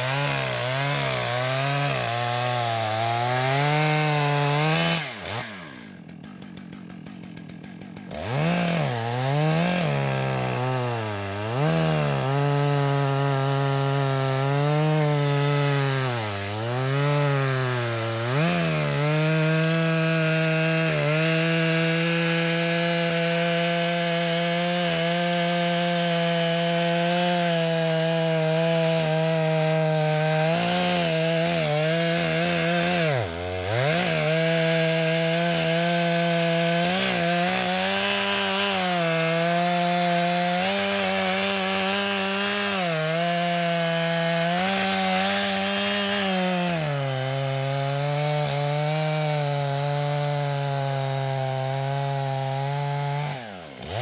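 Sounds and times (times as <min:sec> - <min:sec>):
chainsaw cutting into a tree: 0:00.0 - 0:54.0.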